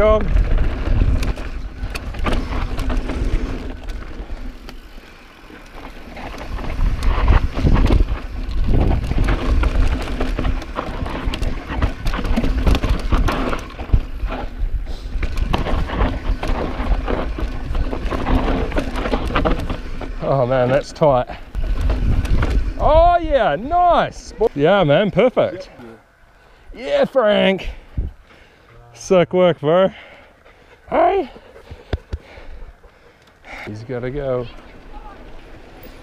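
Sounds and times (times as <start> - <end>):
bike rattling over bumps: 0.0 - 25.8, 30.0 - 36.0
bike tyres rumbling on dirt: 0.0 - 25.8, 33.5 - 36.0.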